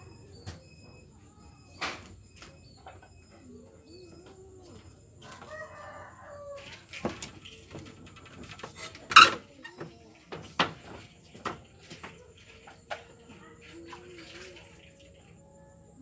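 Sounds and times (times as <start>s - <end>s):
rooster crowing: 5.2s - 7.0s.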